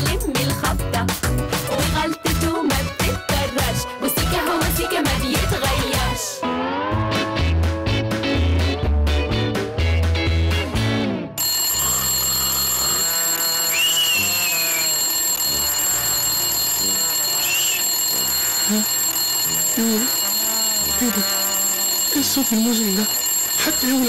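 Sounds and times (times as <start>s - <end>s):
alarm clock ringing: 11.4s - 24.0s.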